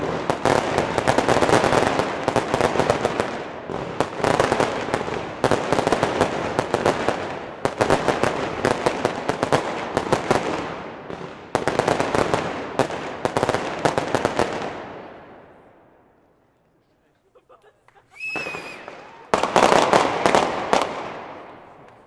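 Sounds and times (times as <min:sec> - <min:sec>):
firework crackling bursts: 0:00.0 - 0:15.1, 0:18.0 - 0:22.0
fireworks launching: 0:18.0 - 0:22.0.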